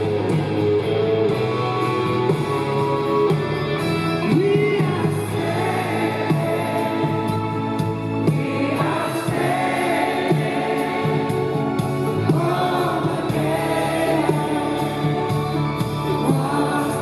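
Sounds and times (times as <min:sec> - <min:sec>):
live band: 0:00.0 - 0:17.0
man singing lead: 0:04.1 - 0:17.0
women singing backing vocals: 0:04.3 - 0:17.0.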